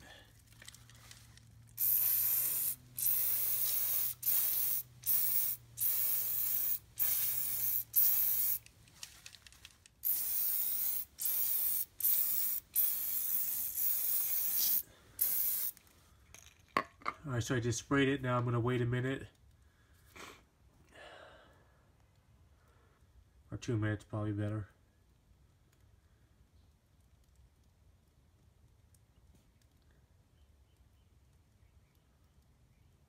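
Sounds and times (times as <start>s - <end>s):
aerosol can spraying: 1.8s - 8.7s, 10.0s - 15.8s.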